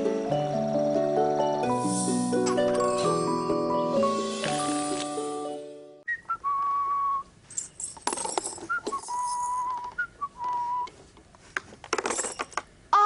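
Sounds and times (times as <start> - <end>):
person whistling notes: 6.1 - 7.3, 8.7 - 10.9.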